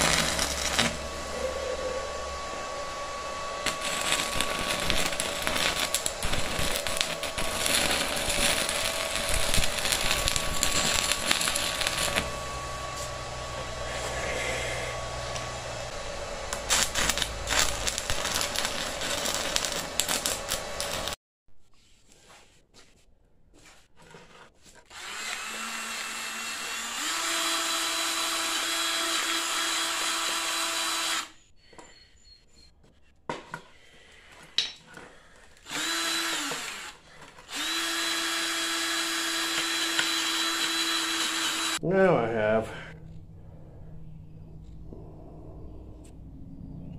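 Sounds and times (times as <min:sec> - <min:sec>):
welding arc crackling: 0:00.0 - 0:01.3, 0:03.6 - 0:14.5, 0:15.3 - 0:21.2
small motor running: 0:00.0 - 0:15.9, 0:35.7 - 0:41.8.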